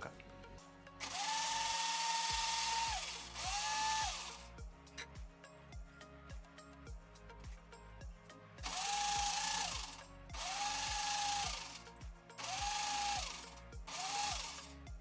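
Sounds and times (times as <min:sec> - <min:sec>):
background music with beat: 0:00.0 - 0:15.0
mixer grinder motor whining: 0:01.0 - 0:04.5, 0:08.6 - 0:14.7.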